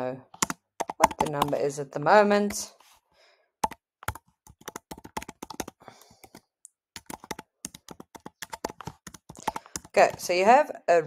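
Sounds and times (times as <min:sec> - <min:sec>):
keyboard typing: 0:00.3 - 0:01.7, 0:03.6 - 0:10.4.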